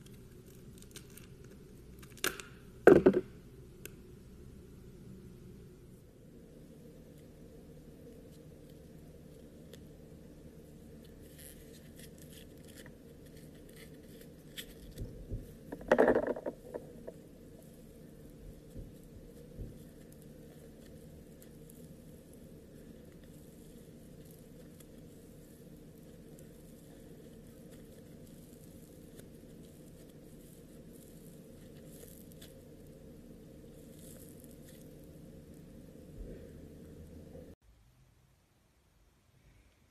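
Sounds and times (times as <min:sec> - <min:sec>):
steady low hum: 0:00.0 - 0:37.6
slime crackling: 0:16.8 - 0:35.8.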